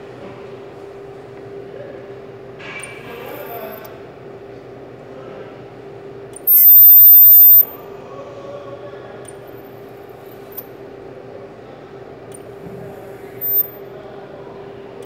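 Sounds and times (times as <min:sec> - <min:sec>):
plastic welder high-pitched squeal: 0:06.5 - 0:07.7, 0:13.4 - 0:13.7.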